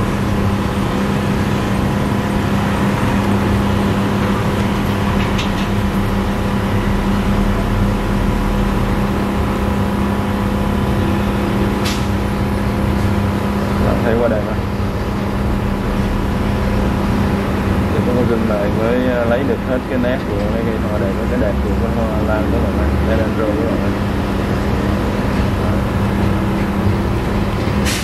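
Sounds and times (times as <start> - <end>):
steady mechanical hum: 0.0 - 28.0.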